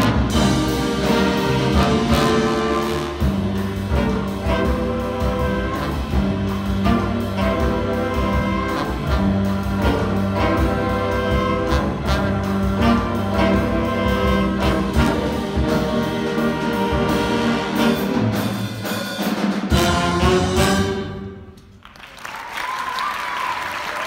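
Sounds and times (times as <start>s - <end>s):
jazz big band playing: 0.0s - 21.8s
audience applause: 21.8s - 24.0s.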